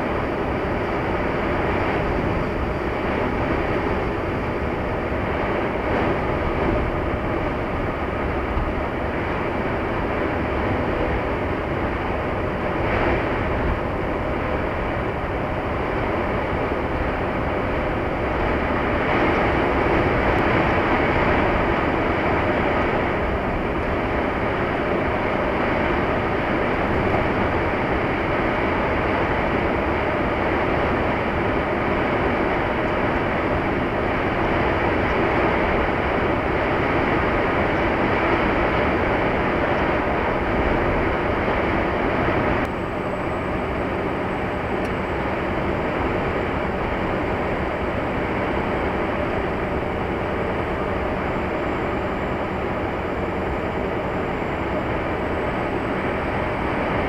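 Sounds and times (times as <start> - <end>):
car road and engine noise: 0.0 - 57.0.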